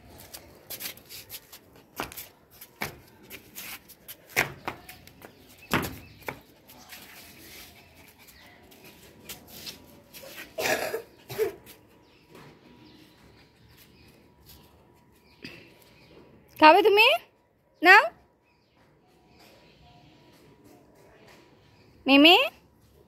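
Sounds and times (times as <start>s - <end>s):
scuffing: 0.0s - 10.5s.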